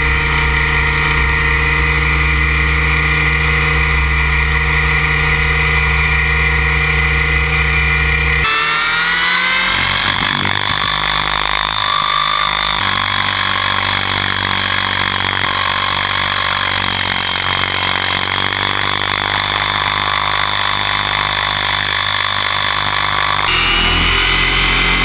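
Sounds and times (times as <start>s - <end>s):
model helicopter motor and rotor: 0.0s - 25.0s.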